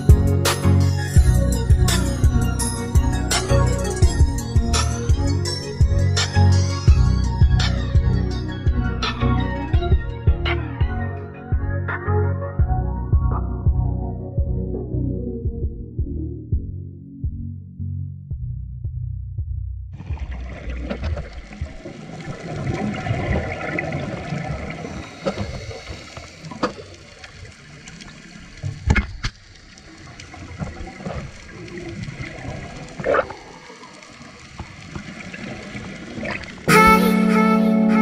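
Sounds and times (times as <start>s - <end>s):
exhaled bubbles gurgling: 20.0s - 36.7s.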